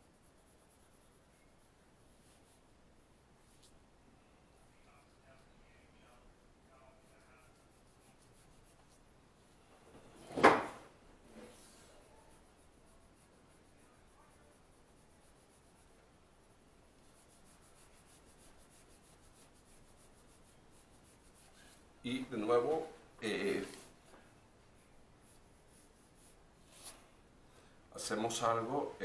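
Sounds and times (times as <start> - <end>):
pencil scratching on paper: 0.0 - 2.6, 6.8 - 9.0, 11.4 - 21.8.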